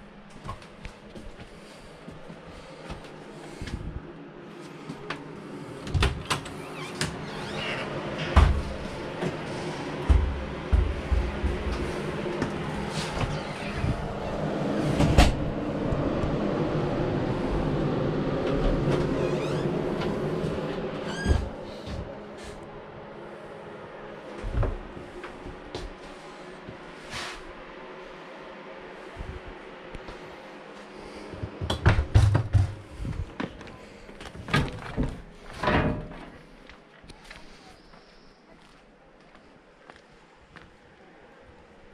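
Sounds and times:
door rumbling as it moves: 0:05.9 - 0:22.2
hollow thumps and knocks: 0:10.1 - 0:11.9.

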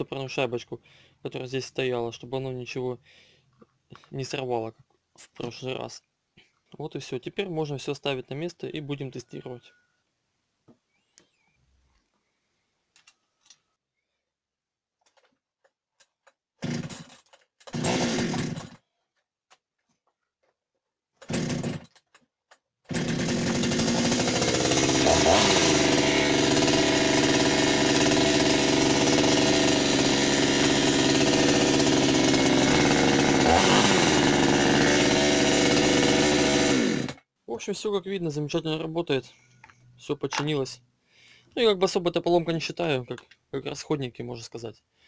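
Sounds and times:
chainsaw engine revving: 0:16.6 - 0:17.1, 0:17.7 - 0:18.8, 0:21.2 - 0:21.9, 0:22.9 - 0:37.2
chainsaw engine running: 0:16.6 - 0:17.1, 0:17.7 - 0:18.8, 0:21.3 - 0:21.8, 0:22.9 - 0:37.2
chainsaw recoil starter pulls: 0:16.6 - 0:18.8, 0:21.2 - 0:22.2, 0:22.9 - 0:37.2.

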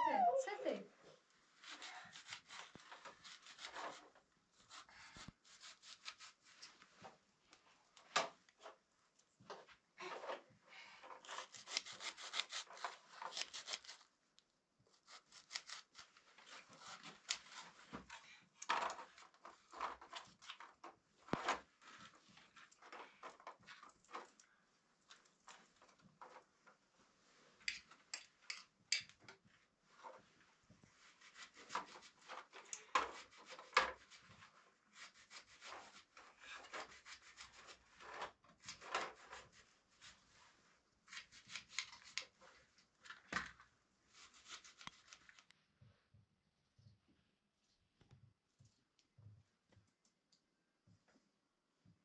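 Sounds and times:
scraping and rubbing: 0:01.5 - 0:07.0, 0:09.5 - 0:14.1, 0:29.9 - 0:42.6.

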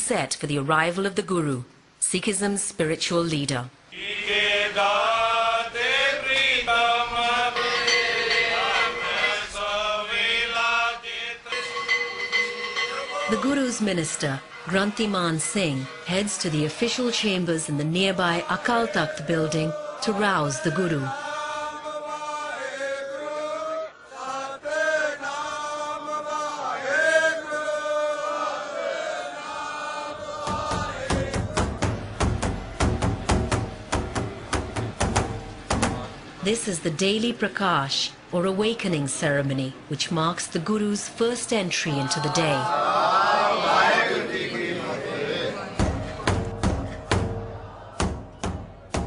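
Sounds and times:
men singing devotional chant: 0:03.9 - 0:11.9, 0:17.8 - 0:32.0
steady drone note: 0:45.7 - 0:49.0.

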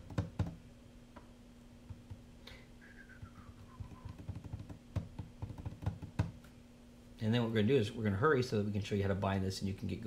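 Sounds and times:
fingers tapping plastic case: 0:00.0 - 0:00.6, 0:03.6 - 0:06.4
steady low hum: 0:00.0 - 0:10.0
whistle-like tone sliding down: 0:02.8 - 0:04.2.

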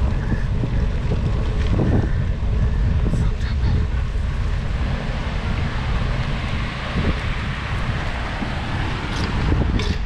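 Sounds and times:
wind buffeting microphone: 0:00.0 - 0:10.0
tyres hissing on wet pavement: 0:04.3 - 0:09.3.

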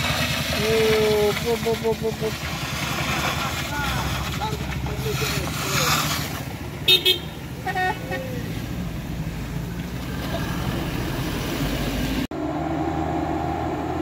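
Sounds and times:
engines running steadily: 0:00.0 - 0:14.0
vehicle horn tooting: 0:06.8 - 0:07.4.

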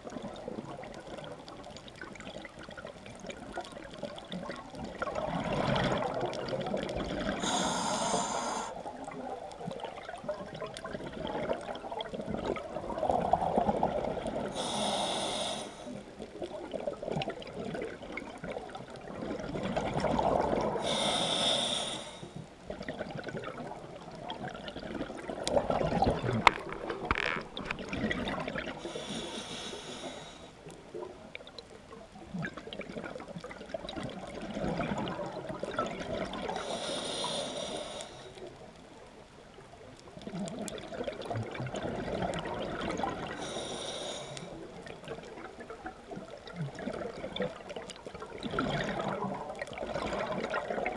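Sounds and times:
regulator hissing inhalations: 0:07.4 - 0:08.8, 0:14.6 - 0:16.0, 0:20.8 - 0:22.3, 0:28.8 - 0:30.6, 0:36.6 - 0:38.4, 0:43.4 - 0:44.5
bubbling exhalations: 0:24.4 - 0:29.1.

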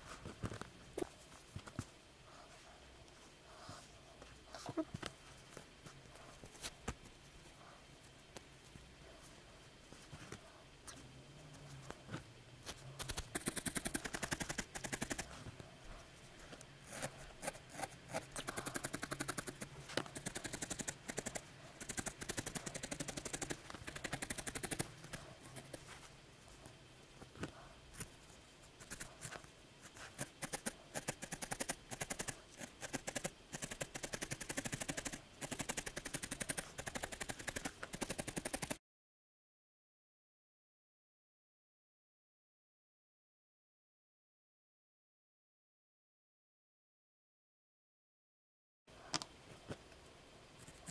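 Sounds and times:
felting needle poking wool: 0:12.6 - 0:15.4, 0:16.4 - 0:26.1, 0:28.8 - 0:38.8.

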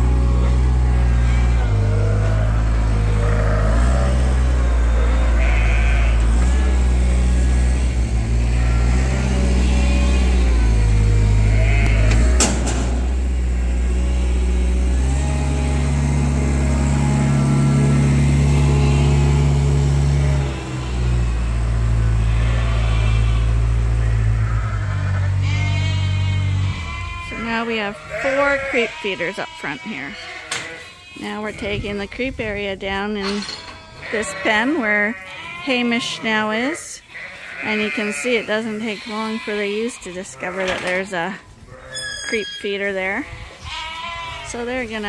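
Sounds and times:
loud low hum: 0:00.0 - 0:27.2
sheep bleating: 0:00.0 - 0:32.3, 0:33.5 - 0:45.0.

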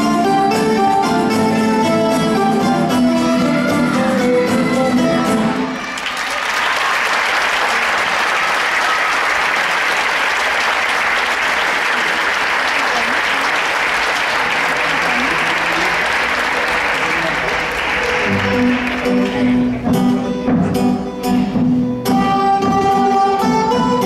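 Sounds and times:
live folk music: 0:00.0 - 0:06.1, 0:10.3 - 0:24.0
audience applauding: 0:05.7 - 0:19.8.

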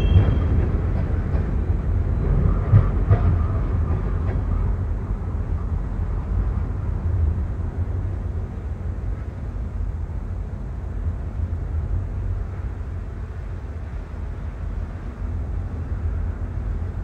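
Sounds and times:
train cars clanking: 0:00.0 - 0:06.7
train wheels rumbling on rail: 0:00.0 - 0:17.0.

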